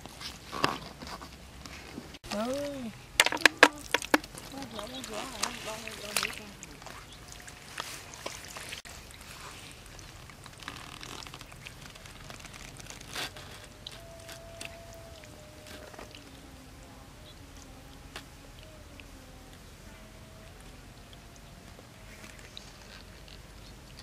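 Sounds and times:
hands squelching through wet mud: 2.3s - 16.4s.

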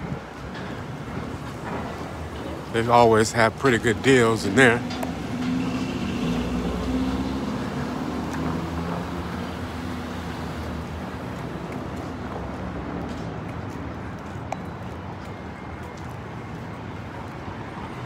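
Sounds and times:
road traffic noise: 0.0s - 18.0s
vehicle engine hum: 1.2s - 14.1s.

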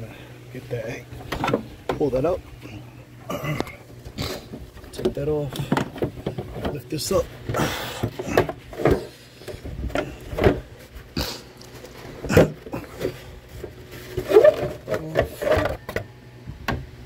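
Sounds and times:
plastic knocks and clunks: 1.2s - 2.1s, 4.5s - 6.9s, 7.5s - 10.7s, 12.3s - 13.7s
plastic squeaks: 11.8s - 16.1s.

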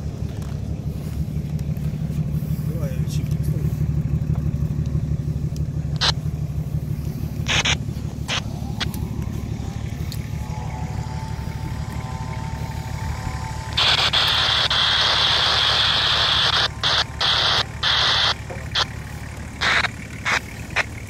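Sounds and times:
vehicle engine running: 0.0s - 21.0s
loud hiss: 13.7s - 18.9s.

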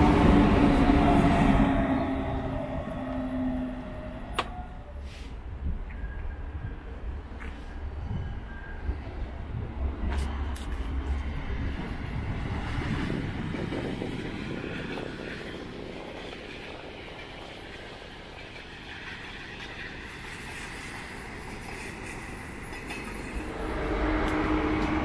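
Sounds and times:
train humming: 0.0s - 25.0s
train rumble: 0.0s - 25.0s.

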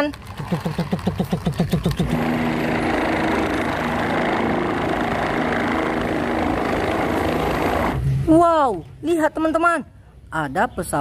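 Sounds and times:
helicopter engine and rotor drone: 2.0s - 8.0s.

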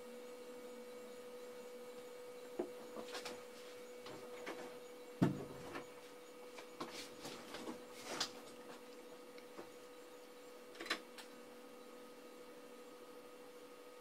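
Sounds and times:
steady electrical hum: 0.0s - 14.0s.

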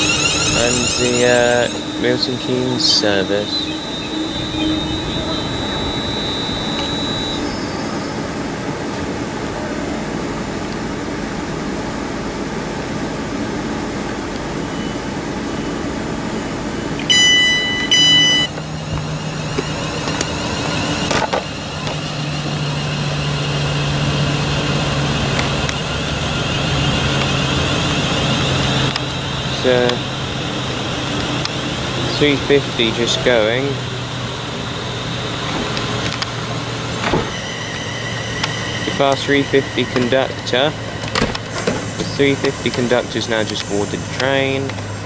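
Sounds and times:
loud electronic beeps: 0.0s - 8.5s, 17.0s - 24.9s, 37.2s - 44.6s
high wavering whine: 0.0s - 45.0s
train equipment humming: 0.0s - 45.0s.

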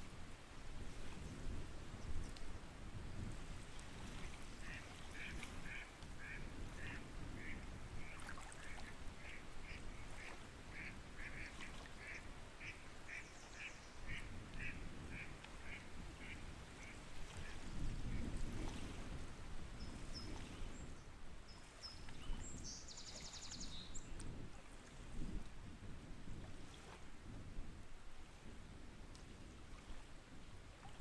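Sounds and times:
ducks quacking: 8.8s - 17.0s.

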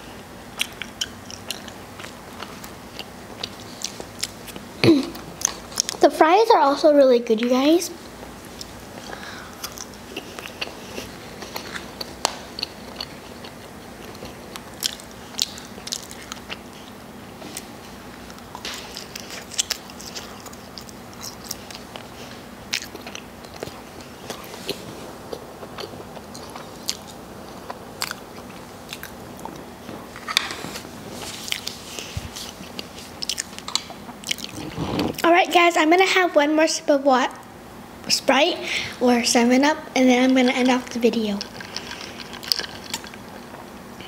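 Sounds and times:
faint steady hum: 0.0s - 44.0s
person chewing crunchy food: 0.5s - 4.7s, 8.5s - 35.3s, 40.6s - 43.8s.

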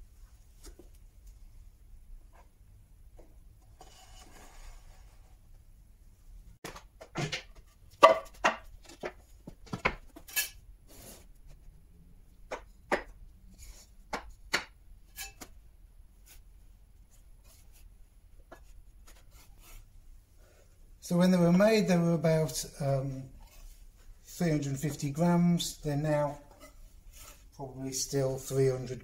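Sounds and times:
wooden boards knocking: 6.6s - 10.2s.

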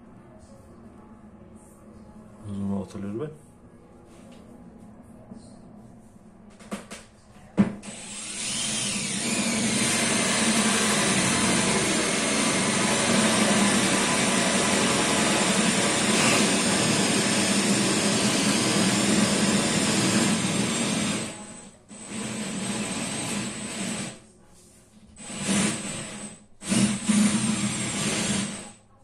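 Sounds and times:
electric drill boring into board: 7.8s - 24.2s, 25.2s - 28.8s.

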